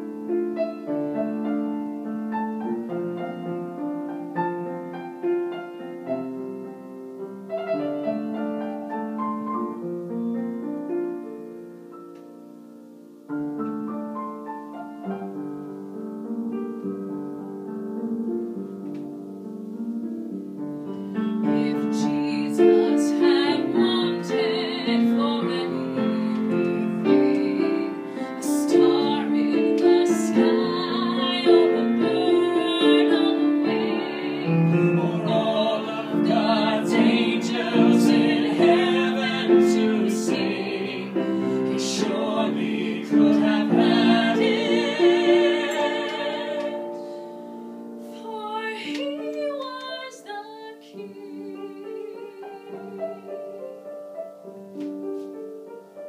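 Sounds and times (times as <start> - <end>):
slow piano piece: 0.0 - 56.0
woman singing with vibrato: 21.4 - 47.2, 48.1 - 53.3.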